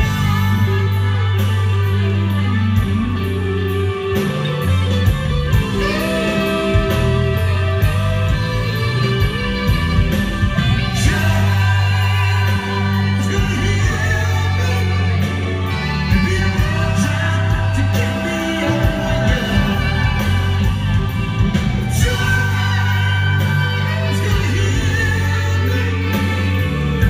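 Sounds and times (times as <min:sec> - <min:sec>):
bass guitar: 0:00.0 - 0:27.0
drums: 0:00.0 - 0:27.0
electric guitar: 0:00.0 - 0:27.0
keyboards: 0:00.0 - 0:27.0
person singing lead: 0:05.0 - 0:27.0.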